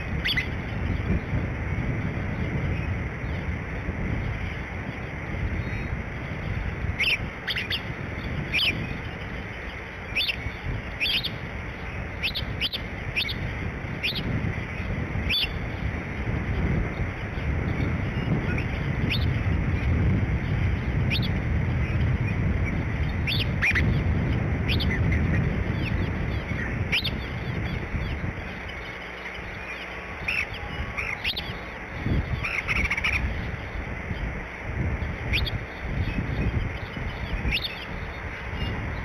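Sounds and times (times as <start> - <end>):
high bird chirps: 0.0 - 1.2, 5.6 - 15.8, 24.7 - 33.8, 35.3 - 38.9
low outdoor rumble: 0.0 - 39.0.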